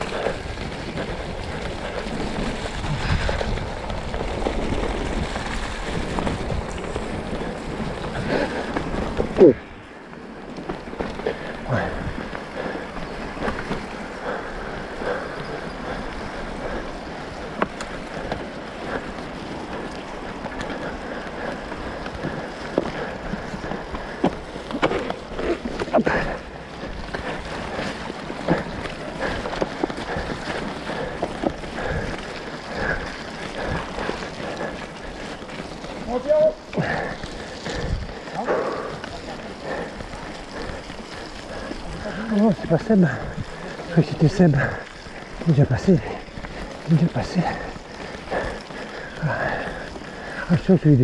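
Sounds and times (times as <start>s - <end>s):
bike knocking and rattling: 0.0s - 51.0s
bike tyre rumble: 0.0s - 51.0s
wind noise on microphone: 0.4s - 8.4s, 37.6s - 38.2s.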